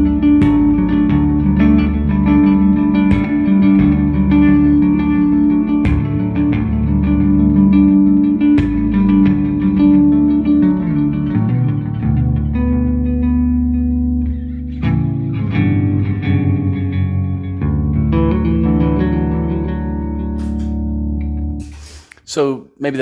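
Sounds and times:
bass guitar picked with delay: 0.0 - 21.8.

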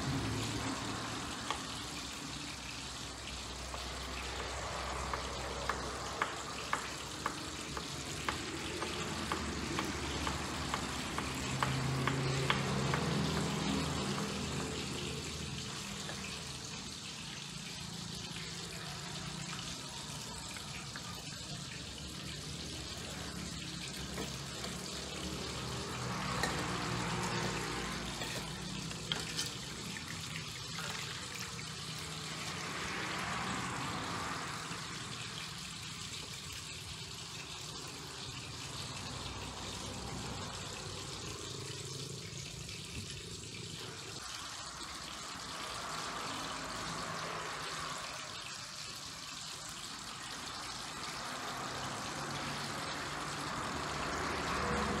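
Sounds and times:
water sloshing in steel basin: 24.0 - 32.9.

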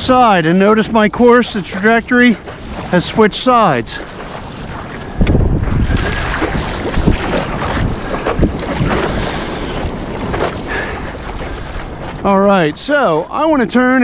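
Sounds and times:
water rushing along paddleboard: 0.0 - 14.0
wind rumbling on microphone: 0.7 - 14.0
paddle splashing into water: 1.4 - 12.3.

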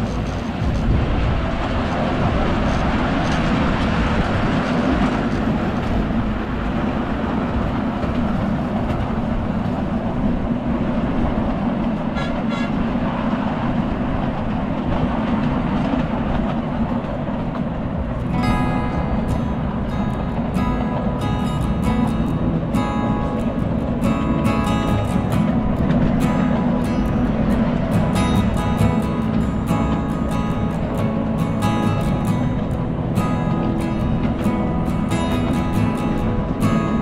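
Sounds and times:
miniature train running on track: 0.0 - 37.0.

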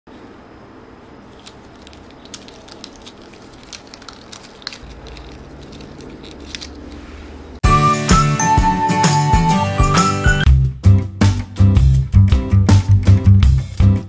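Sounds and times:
plastic straws clicking: 1.3 - 7.0.

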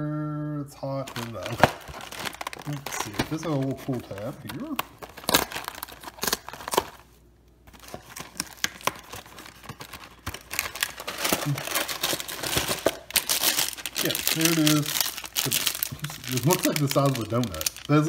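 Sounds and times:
plastic wrap crinkling: 1.0 - 18.0
cardboard carton tearing: 1.1 - 7.0.

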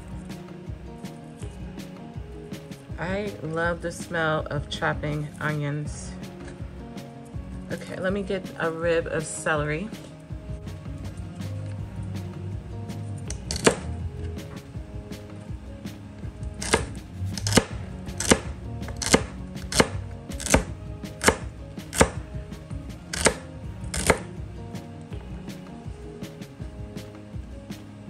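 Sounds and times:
knife chopping on cutting board: 16.6 - 22.2, 23.1 - 24.3.

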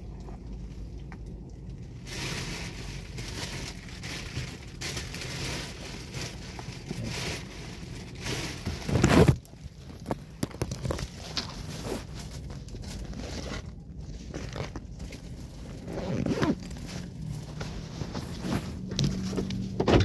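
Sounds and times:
phone rustling against clothing: 5.2 - 19.8.

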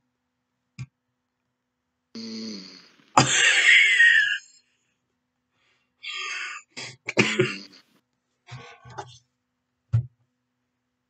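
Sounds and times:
man snoring loudly: 2.2 - 3.7.

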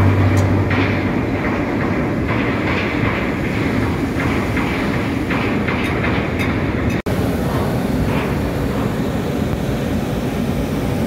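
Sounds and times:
propeller wash churning water: 0.0 - 11.0
ship engine rumbling: 0.0 - 11.0.

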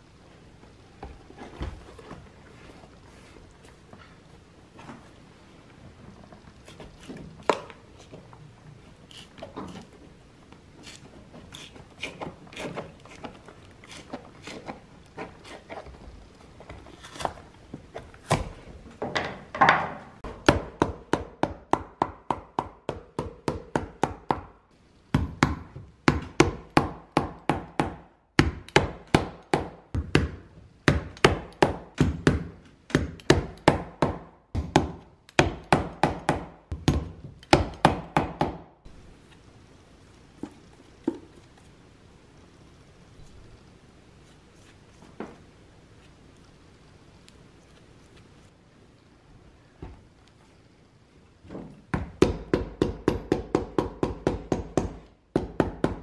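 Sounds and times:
hammer striking nails: 19.2 - 38.7, 51.9 - 56.0.

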